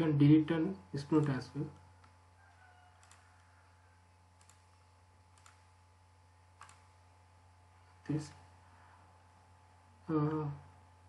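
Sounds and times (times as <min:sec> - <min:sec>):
low steady hum: 0:00.0 - 0:11.0
computer mouse clicks: 0:03.0 - 0:03.5, 0:04.4 - 0:04.7, 0:05.3 - 0:05.6, 0:06.6 - 0:06.8.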